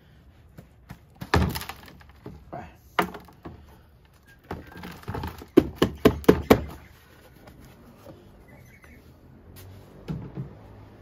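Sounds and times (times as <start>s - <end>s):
plastic pot rustling and scraping: 4.0s - 5.6s, 6.6s - 10.9s.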